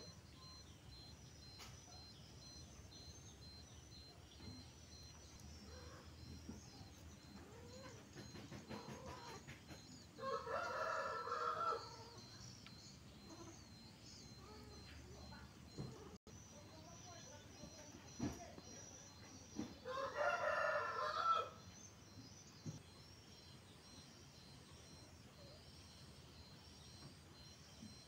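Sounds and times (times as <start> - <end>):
rooster crowing: 10.2 - 12.3, 19.8 - 21.6.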